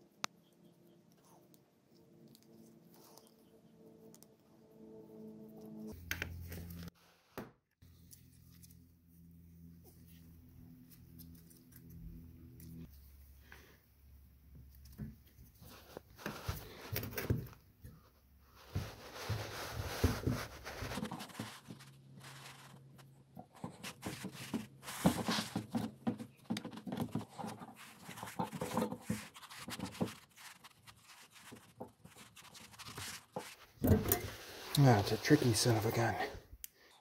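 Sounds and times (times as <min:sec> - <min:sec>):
gloves rubbing: 0:18.0 - 0:36.6.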